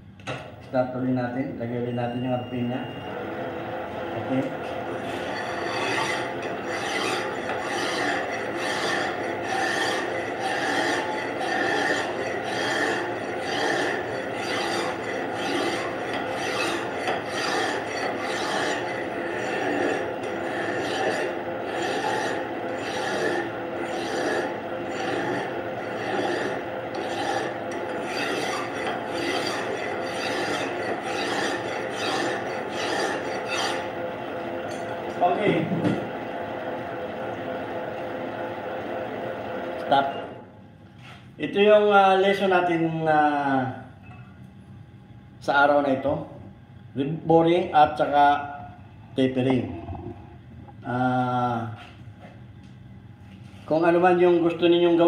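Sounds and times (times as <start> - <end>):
lathe motor humming: 3.2 - 35.3
file rasping on metal: 5.2 - 33.9.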